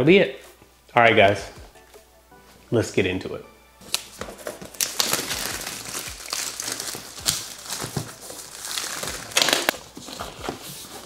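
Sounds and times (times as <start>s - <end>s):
plastic wrap crinkling: 3.8s - 11.0s.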